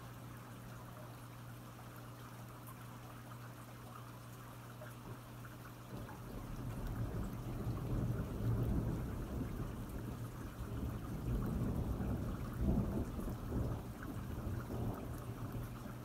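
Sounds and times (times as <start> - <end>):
steady rain: 0.0 - 16.0
thunder rumbling: 6.0 - 16.0.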